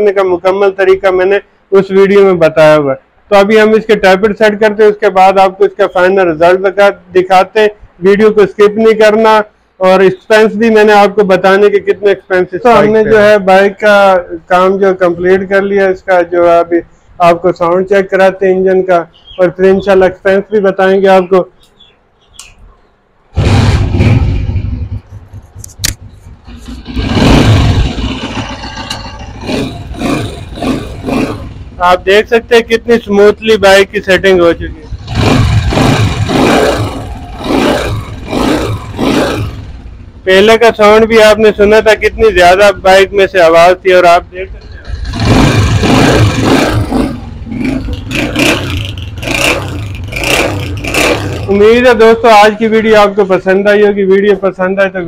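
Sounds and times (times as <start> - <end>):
sharp click: 21.6 - 22.7, 25.3 - 26.1
motorcycle engine starting and revving: 23.4 - 31.8, 34.9 - 40.2, 44.7 - 52.0.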